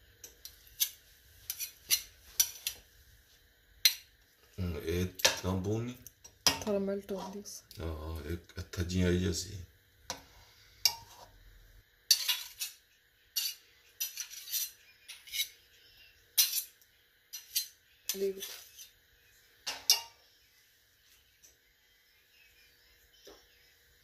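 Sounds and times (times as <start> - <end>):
metal spoons clinking and scraping: 0.2 - 2.8, 12.1 - 15.7, 16.4 - 19.0, 19.7 - 20.2.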